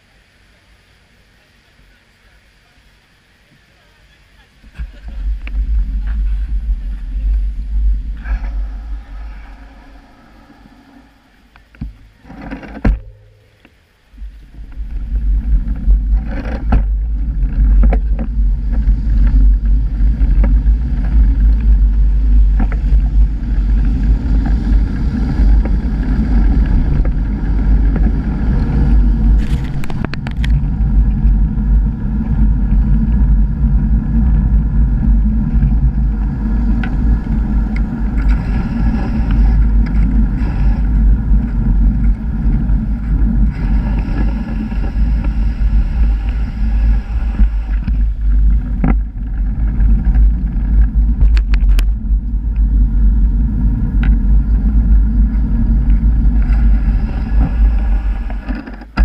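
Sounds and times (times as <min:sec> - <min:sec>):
wind and road rumble: 0:00.0 - 0:59.0.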